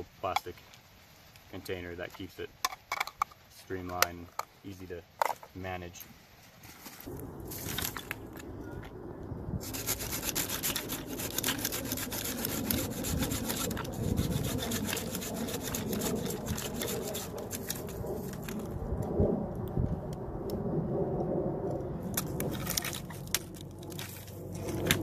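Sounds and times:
pull saw cutting a branch: 0:09.6 - 0:18.4.

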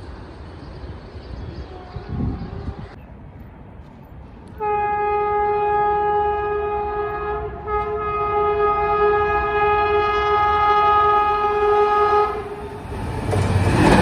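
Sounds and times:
train horn blast: 0:04.5 - 0:12.8.

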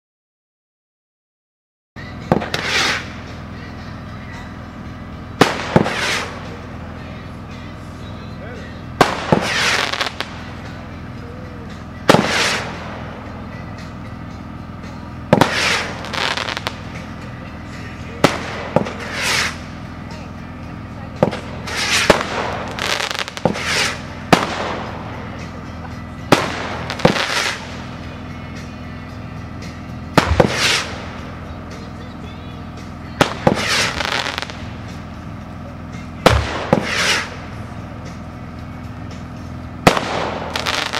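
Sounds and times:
firework missile launching: 0:02.3 - 0:03.4, 0:05.4 - 0:06.6, 0:09.0 - 0:10.6, 0:12.1 - 0:13.3, 0:15.3 - 0:17.0, 0:18.2 - 0:19.8, 0:21.2 - 0:25.5, 0:26.3 - 0:28.1, 0:30.1 - 0:31.5, 0:33.2 - 0:35.0, 0:36.2 - 0:37.6, 0:39.8 - 0:40.9
rushing hiss of firework flying: 0:02.5 - 0:03.1, 0:19.0 - 0:19.6.

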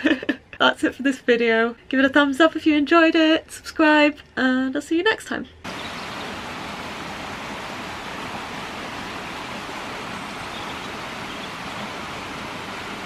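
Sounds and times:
stream water rushing: 0:05.7 - 0:13.0.

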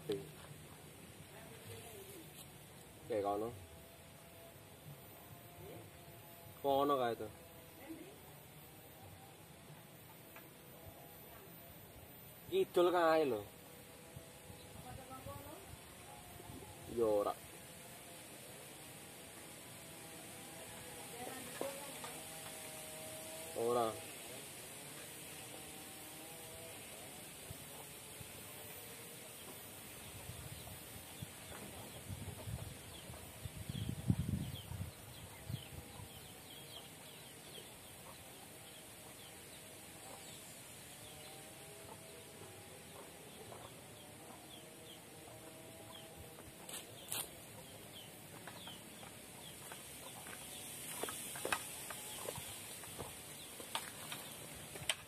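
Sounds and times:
steady high hiss: 0:00.0 - 0:42.8, 0:46.1 - 0:55.0
small birds chirping: 0:20.6 - 0:55.0
chickens clucking: 0:41.9 - 0:54.5.

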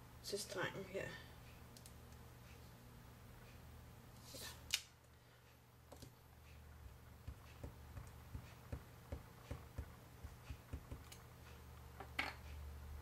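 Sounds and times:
stamp block tapping on paper: 0:07.2 - 0:11.1.

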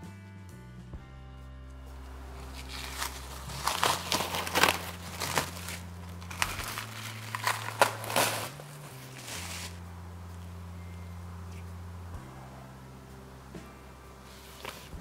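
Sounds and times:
cling film crinkling: 0:02.3 - 0:09.8, 0:14.2 - 0:15.0.

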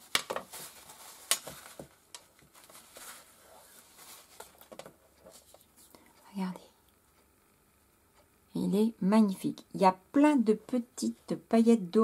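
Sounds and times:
paper rustling: 0:00.0 - 0:05.9.

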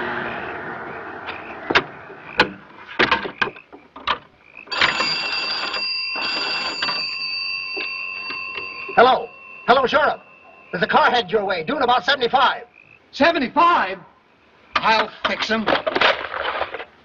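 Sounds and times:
car passing: 0:00.0 - 0:03.0
telephone bell ringing: 0:04.7 - 0:11.3.

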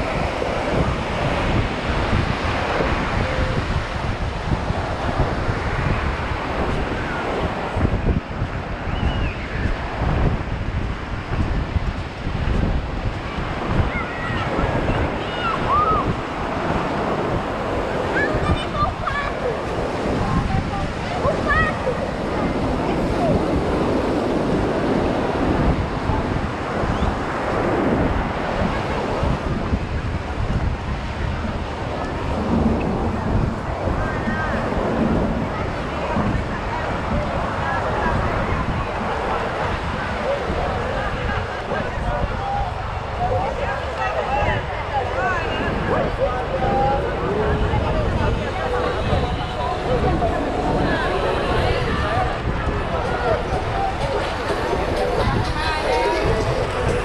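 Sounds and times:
ocean surf breaking: 0:00.0 - 0:57.0
wind buffeting microphone: 0:00.0 - 0:57.0.

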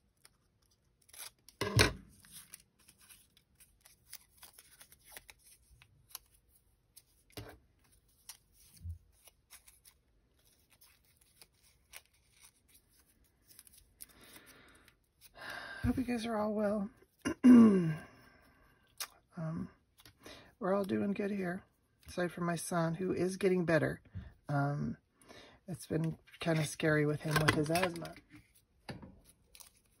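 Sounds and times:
paper rustling: 0:00.0 - 0:14.6.

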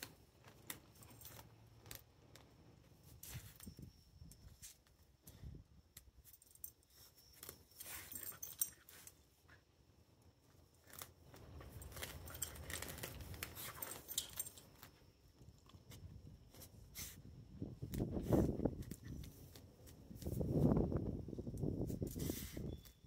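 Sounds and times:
collar tags jingling: 0:00.4 - 0:16.2
grass tearing and crackling: 0:10.7 - 0:15.0.

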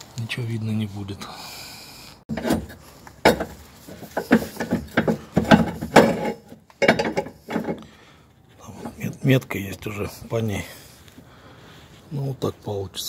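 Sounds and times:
metal knocks and clanks: 0:02.3 - 0:07.8
metal scraping: 0:02.3 - 0:07.9.

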